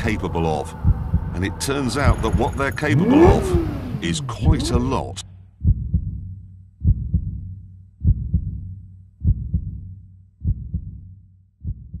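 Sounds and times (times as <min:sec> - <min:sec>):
heartbeat thumps: 0:00.7 - 0:01.4, 0:05.6 - 0:11.0, 0:11.6 - 0:12.0.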